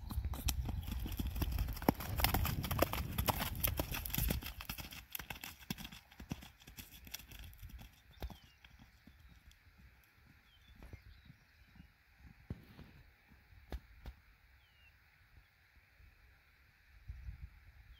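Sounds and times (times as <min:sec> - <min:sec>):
horse hoofbeats on dirt road: 0:00.0 - 0:13.5.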